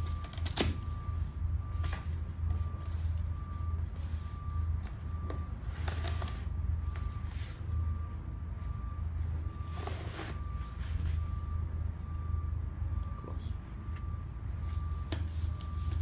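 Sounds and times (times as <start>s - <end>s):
cardboard drawer scraping: 9.7s - 10.4s.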